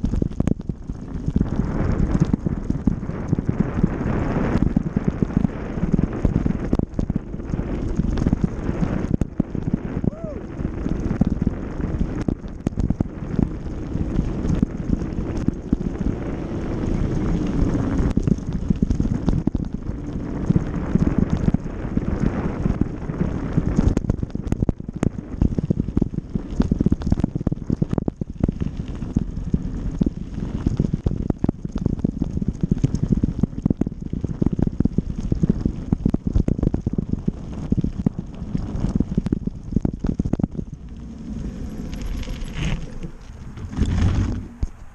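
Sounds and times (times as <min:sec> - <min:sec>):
bike rattling over bumps: 0:00.0 - 0:44.9
wind buffeting microphone: 0:00.0 - 0:44.9
tyres rolling over dirt: 0:38.3 - 0:44.9.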